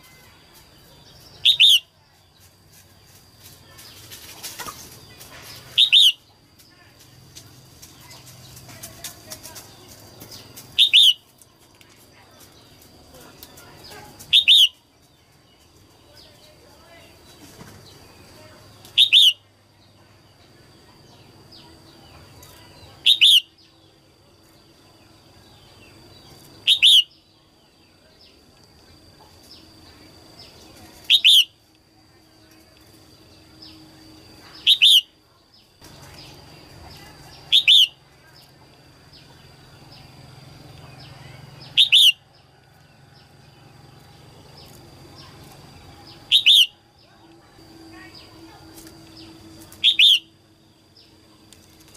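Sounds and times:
bird giving sharp calls: 0:01.4 - 0:01.8, 0:05.7 - 0:06.2, 0:10.8 - 0:11.2, 0:14.3 - 0:14.8, 0:37.5 - 0:38.0, 0:41.7 - 0:42.2, 0:46.3 - 0:46.8, 0:49.8 - 0:50.3.

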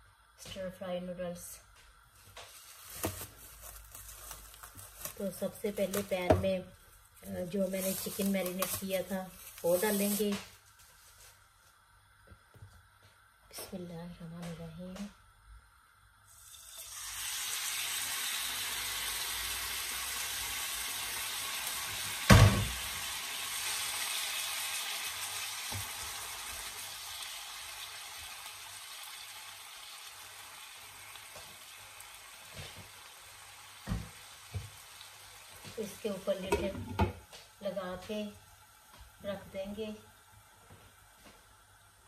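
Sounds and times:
chicken sizzling in a wok: 0:07.2 - 0:11.3, 0:16.2 - 0:42.0.

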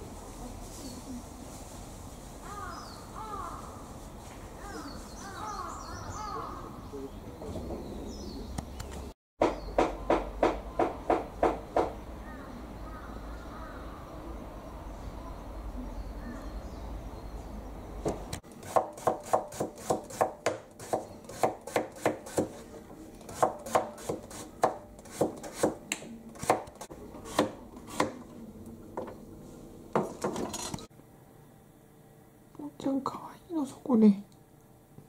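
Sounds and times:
knife chopping on cutting board: 0:18.1 - 0:22.6, 0:23.3 - 0:28.2.

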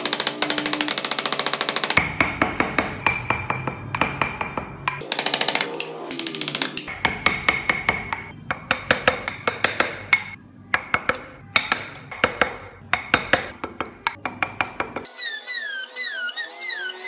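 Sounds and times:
mallet tapping chisel on wood: 0:00.0 - 0:15.1.

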